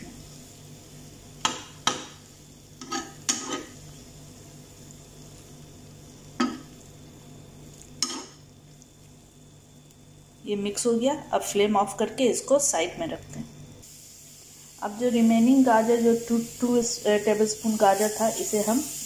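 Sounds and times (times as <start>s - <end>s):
steady low hum: 0.0s - 19.0s
spoon scraping frying pan: 2.8s - 3.8s.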